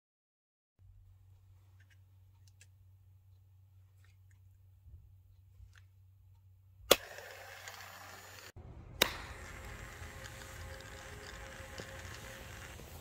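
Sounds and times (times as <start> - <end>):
toy motor whirring: 6.9 - 13.0.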